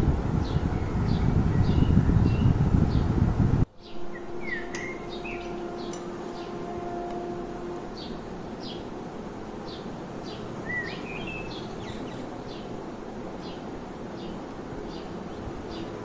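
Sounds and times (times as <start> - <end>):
background hiss: 3.7 - 16.0
birds chirping: 3.7 - 16.0
rising bird whistle: 3.8 - 8.8.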